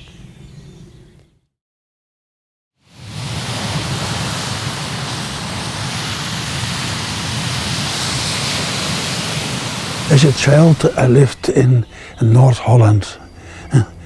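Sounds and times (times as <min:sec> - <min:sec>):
sea surf washing onto beach: 0:02.8 - 0:11.8.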